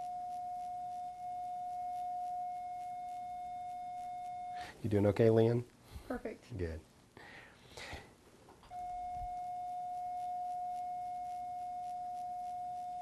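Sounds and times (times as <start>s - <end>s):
steady electronic beep: 0.0s - 4.7s, 8.7s - 13.0s.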